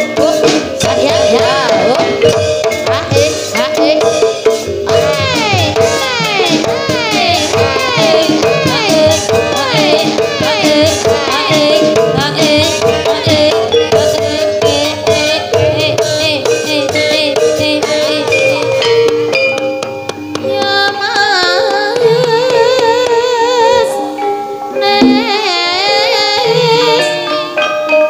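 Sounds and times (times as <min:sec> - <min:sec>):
drums: 0:00.0 - 0:24.0, 0:24.8 - 0:28.0
person singing wavering melody: 0:00.0 - 0:28.0
pitched percussion: 0:00.0 - 0:28.0.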